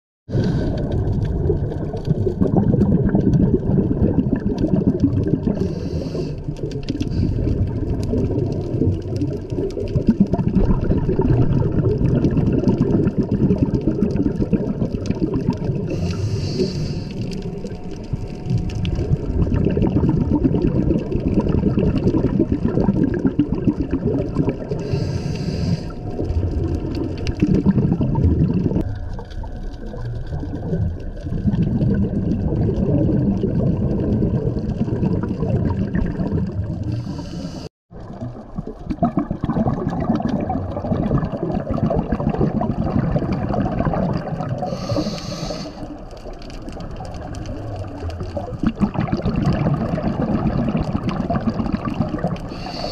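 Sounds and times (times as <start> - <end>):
underwater rumble and bubbling: 0.3 - 52.9
regulator hiss: 16.0 - 17.2, 44.7 - 45.8.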